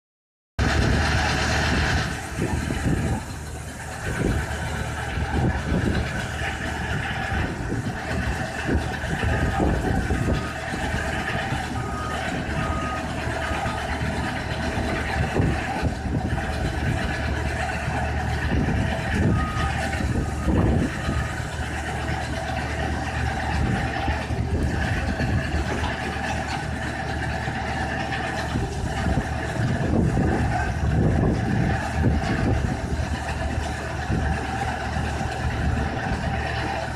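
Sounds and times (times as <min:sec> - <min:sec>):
diesel engine running: 0:00.6 - 0:36.9
loader knocks and rumbles: 0:00.6 - 0:36.9
reversing alarm beeps: 0:09.2 - 0:14.2, 0:18.7 - 0:21.4.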